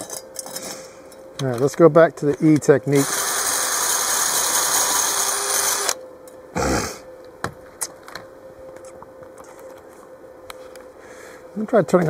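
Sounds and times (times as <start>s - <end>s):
wire wheel grinder whirring: 2.9s - 6.0s.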